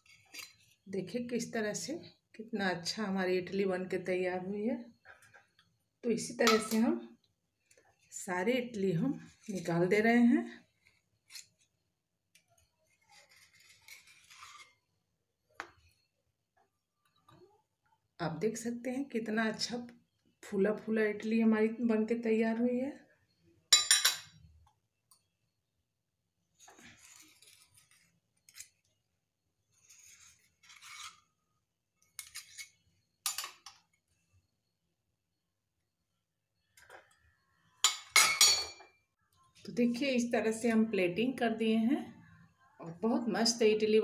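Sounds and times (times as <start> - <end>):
knife scratching steel bowl: 0.0 - 0.8, 12.9 - 14.9, 27.0 - 28.9, 29.7 - 31.4, 32.2 - 32.8.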